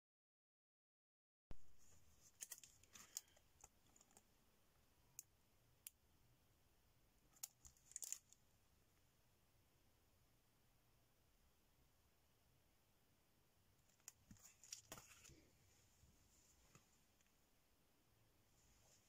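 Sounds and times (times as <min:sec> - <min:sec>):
plastic packaging crinkling: 0:02.2 - 0:04.2, 0:07.4 - 0:08.4.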